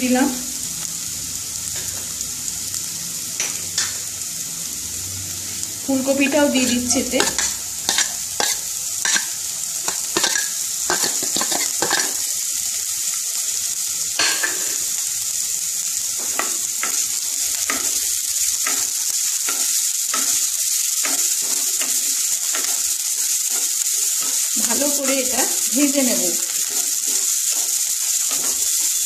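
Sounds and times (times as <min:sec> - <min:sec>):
vegetables sizzling in hot oil: 0:00.0 - 0:29.0
spatula scraping pan: 0:06.2 - 0:12.3, 0:26.5 - 0:29.0.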